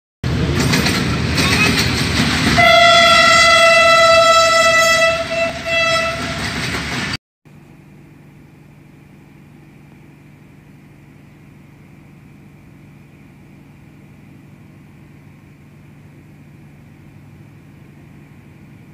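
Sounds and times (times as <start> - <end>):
train running: 0.2 - 18.9
train horn: 2.6 - 6.6.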